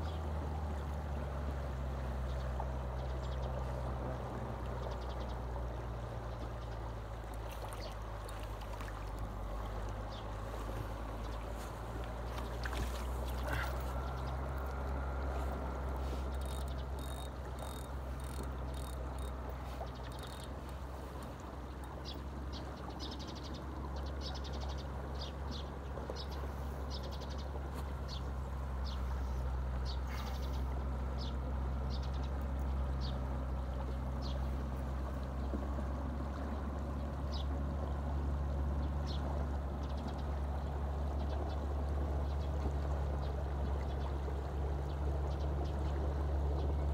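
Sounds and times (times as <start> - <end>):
flowing river water: 0.0 - 46.9
light clicks and ticks: 16.2 - 19.4.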